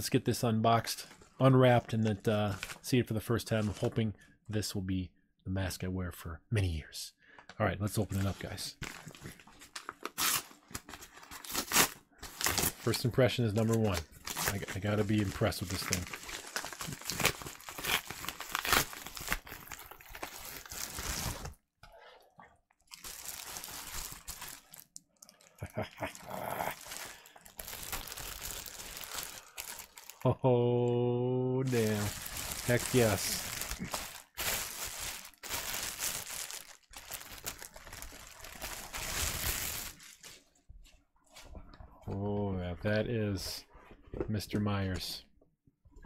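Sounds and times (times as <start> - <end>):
envelope crinkling and rustling: 8.0 - 21.6, 22.9 - 30.3, 31.6 - 40.6.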